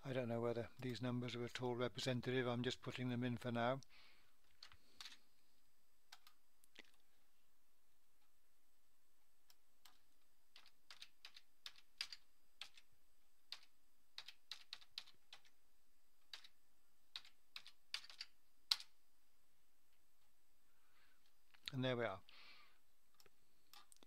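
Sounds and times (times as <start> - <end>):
computer keyboard keystrokes: 9.8 - 12.9, 13.5 - 15.6, 16.3 - 18.9.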